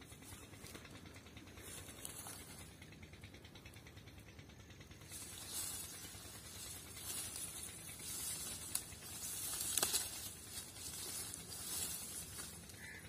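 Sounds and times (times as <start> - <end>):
dry reeds rustling and crackling: 0.0 - 4.0, 4.6 - 13.0
sharp snaps of stems: 5.1 - 13.0.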